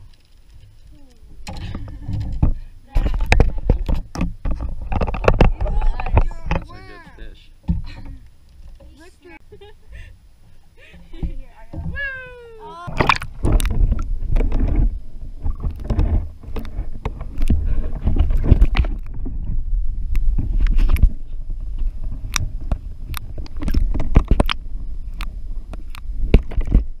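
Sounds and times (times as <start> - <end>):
steady low rumble: 0.0 - 27.0
sharp clicks and knocks: 1.4 - 6.8, 13.0 - 21.2, 22.2 - 26.9
muffled water sloshing and gurgling: 10.0 - 27.0.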